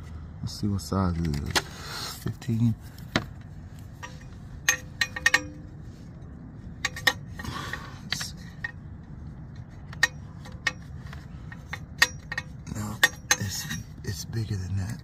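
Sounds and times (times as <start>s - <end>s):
metal socket clinking: 4.0s - 5.8s, 6.8s - 7.4s, 9.5s - 13.9s.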